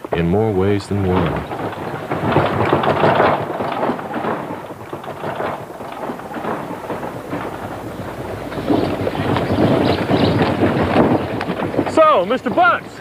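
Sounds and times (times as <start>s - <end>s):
wooden wagon rolling over ground: 0.0s - 13.0s.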